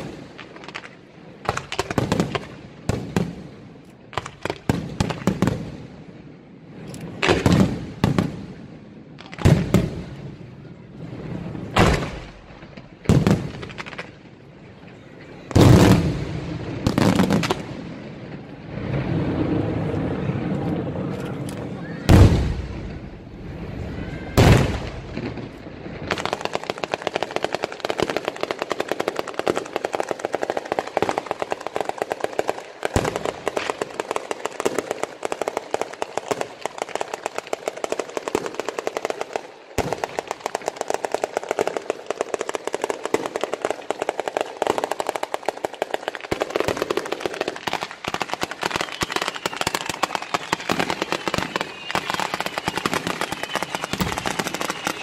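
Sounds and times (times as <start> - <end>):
firecracker bangs: 11.3 - 14.2, 22.1 - 29.8, 39.8 - 55.0.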